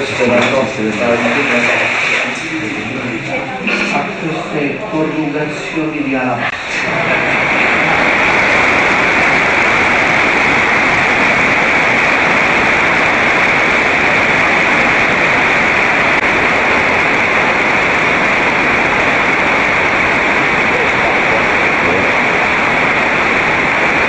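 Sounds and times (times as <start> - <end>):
stream rushing water: 6.6 - 24.0.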